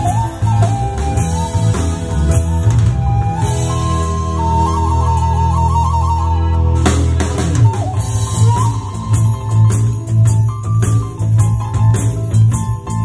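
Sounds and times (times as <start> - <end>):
steady drum beat: 0.0 - 4.6, 6.8 - 13.0
flute melody: 0.0 - 11.9
jingling percussion: 8.0 - 13.0.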